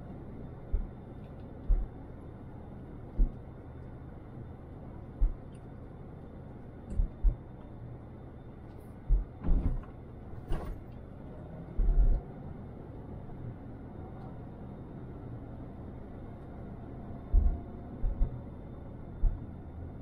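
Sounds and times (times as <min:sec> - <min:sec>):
car road noise rumble: 0:00.0 - 0:20.0
sudden low thumps: 0:09.1 - 0:09.8, 0:17.3 - 0:18.4.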